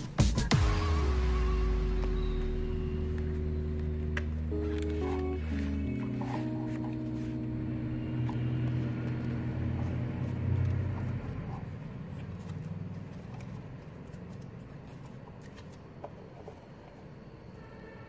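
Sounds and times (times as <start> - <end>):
background music of low notes: 0.0 - 15.8.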